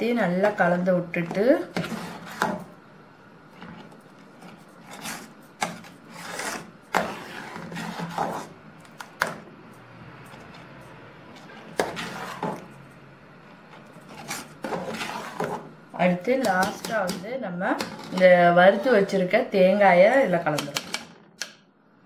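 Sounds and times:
ladle scraping a metal pot: 14.1 - 15.6.

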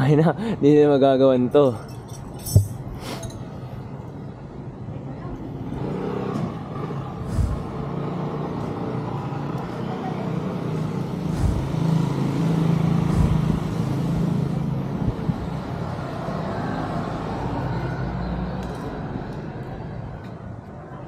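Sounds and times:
road traffic noise: 0.0 - 21.0
vehicle engine running: 7.0 - 8.9, 10.0 - 15.6.

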